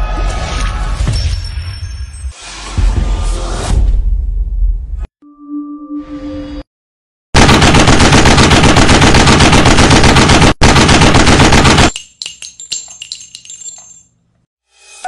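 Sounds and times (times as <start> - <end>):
machine-gun fire: 7.4 - 11.9
metallic clinks and ringing: 11.9 - 14.4.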